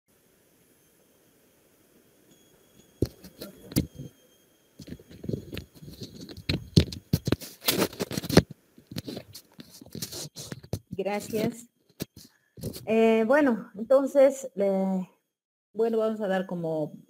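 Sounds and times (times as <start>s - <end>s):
clicks scrapes and rustles: 3.0s - 4.1s, 4.8s - 12.9s.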